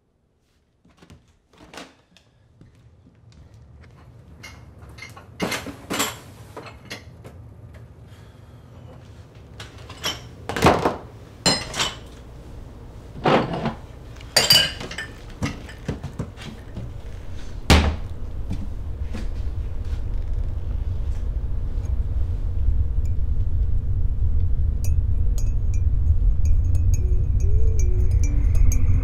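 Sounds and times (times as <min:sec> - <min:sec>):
low steady hum: 0:02.6 - 0:29.0
dishes and mugs clinking: 0:11.5 - 0:12.1, 0:13.3 - 0:16.3.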